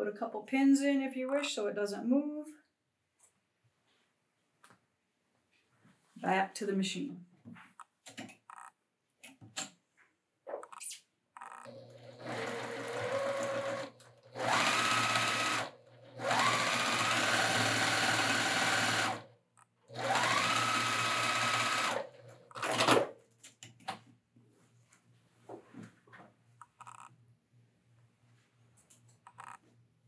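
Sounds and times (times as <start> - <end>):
sewing machine stitching: 11.4 - 19.3, 19.9 - 23.1.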